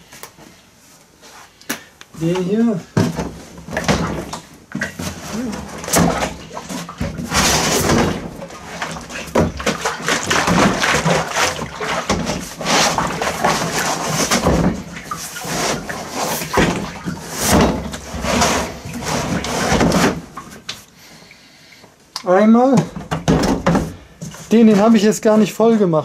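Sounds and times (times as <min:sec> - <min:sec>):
oil sloshing in plastic can: 0:03.0 - 0:20.9.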